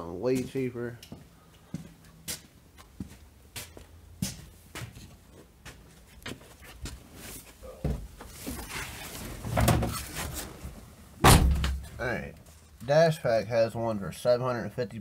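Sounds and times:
footsteps on garage floor: 0.1 - 8.6.

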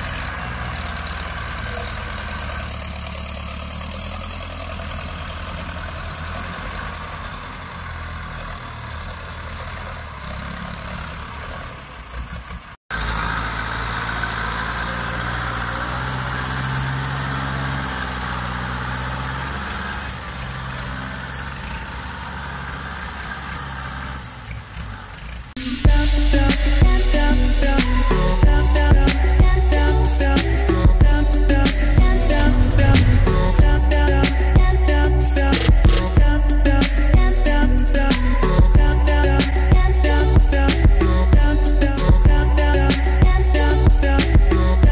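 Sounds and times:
tractor diesel engines under load: 0.0 - 44.9.

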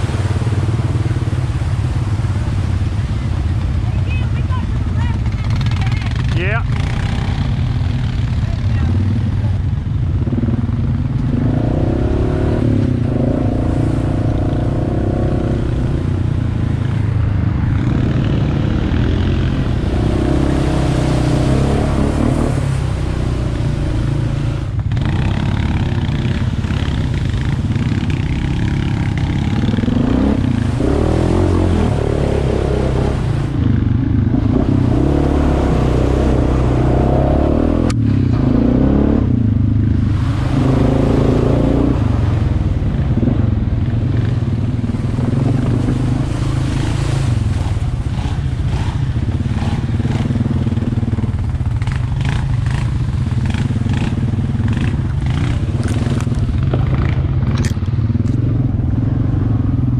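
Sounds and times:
atv engine revving: 0.0 - 3.6, 4.2 - 59.9.

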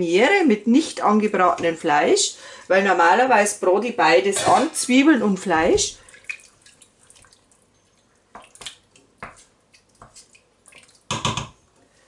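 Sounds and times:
wet squelches of stirring: 4.5 - 12.0.

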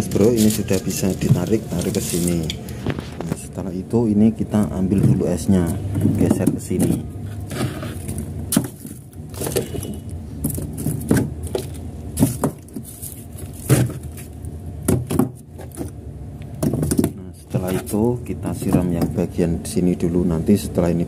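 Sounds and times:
ice blocks knocking and scraping: 0.0 - 3.4, 6.0 - 14.3, 16.6 - 19.2
steady low hum: 0.0 - 21.0.

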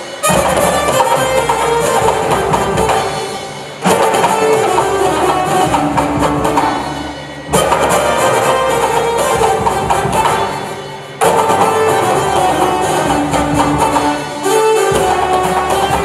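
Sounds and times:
fusion band playing: 0.0 - 16.0
loud ensemble hit: 0.0 - 16.0.

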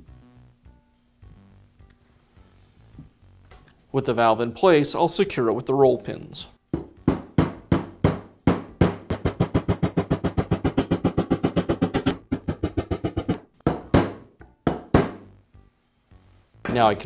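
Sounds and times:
hammer tapping pins into metal: 6.8 - 15.3
hard hammer blows: 6.8 - 15.3.

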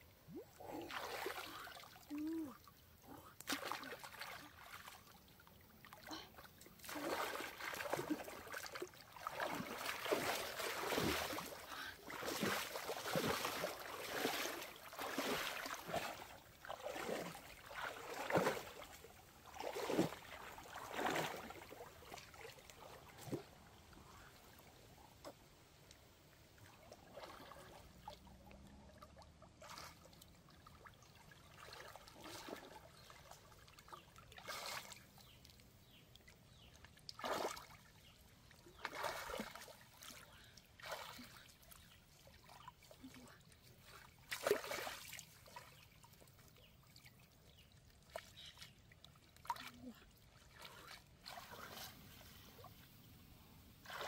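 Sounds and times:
water splashing and trickling: 0.0 - 54.0.

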